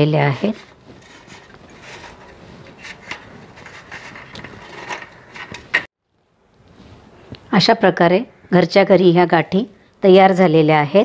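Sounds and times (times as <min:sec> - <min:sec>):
faint scraping on metal tray: 0:00.0 - 0:05.6.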